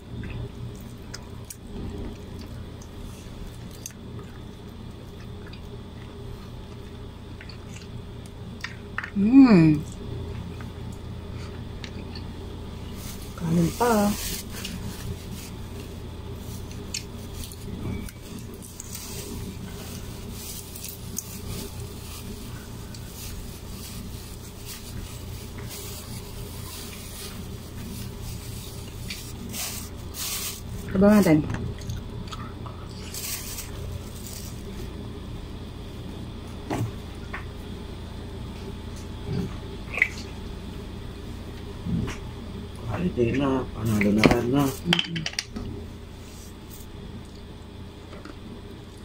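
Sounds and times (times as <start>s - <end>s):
steady low hum: 0.0s - 49.0s
plastic bag crinkling: 12.8s - 31.8s, 32.9s - 35.0s.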